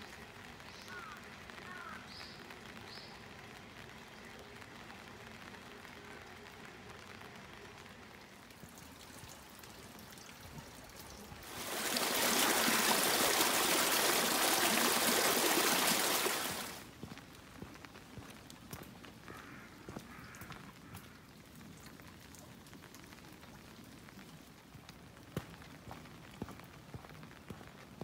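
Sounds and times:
water rushing through channel: 0:07.7 - 0:16.9.

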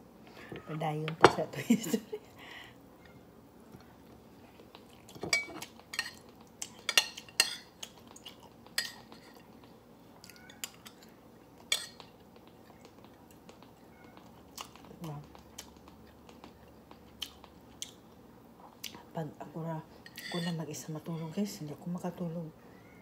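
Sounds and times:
metal spoon clinking on bowl: 0:20.1 - 0:20.6.

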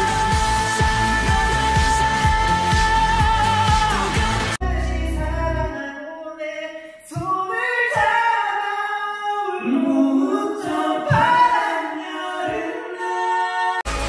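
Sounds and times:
man singing pop ballad: 0:00.0 - 0:08.2.

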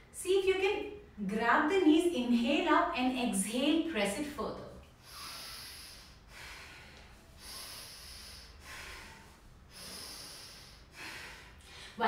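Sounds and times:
person breathing slowly: 0:05.0 - 0:12.0.

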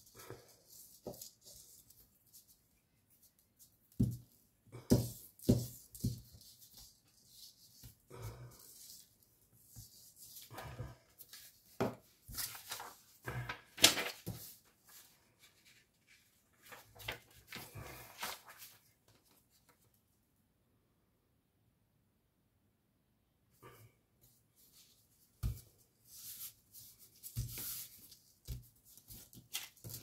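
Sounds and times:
handling rustles and taps: 0:00.7 - 0:08.0, 0:24.7 - 0:30.0.

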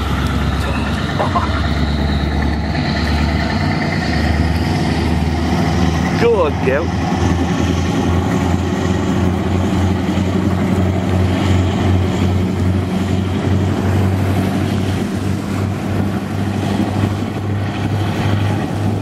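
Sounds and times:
diesel engines droning: 0:00.0 - 0:19.0
water rushing and spray: 0:00.0 - 0:19.0.

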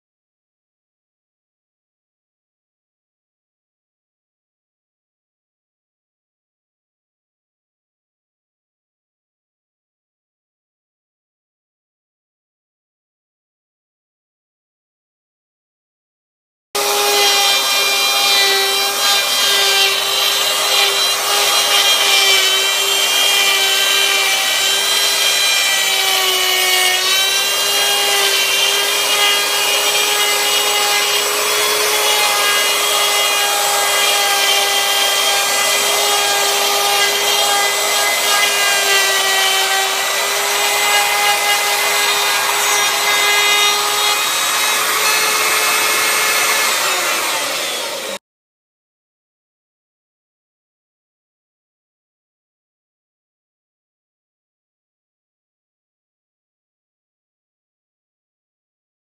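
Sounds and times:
router bit cutting wood: 0:16.8 - 0:48.2
router whining: 0:16.8 - 0:48.2.

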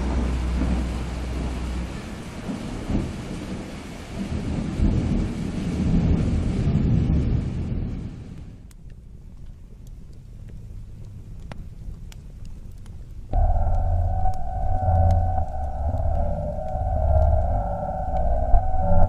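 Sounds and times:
rumbling thunder: 0:00.0 - 0:08.4, 0:13.3 - 0:19.0
rain hissing: 0:00.0 - 0:08.6, 0:13.2 - 0:19.0.

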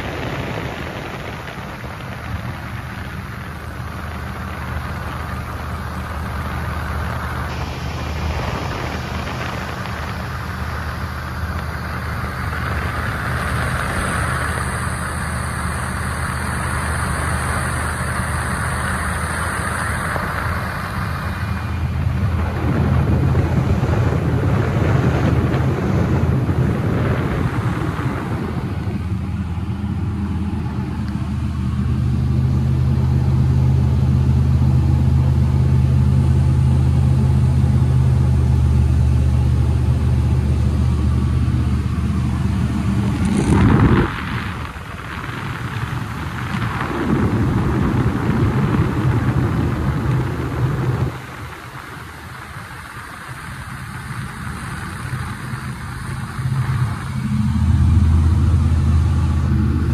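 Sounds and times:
propeller plane engine droning: 0:00.0 - 0:59.9.

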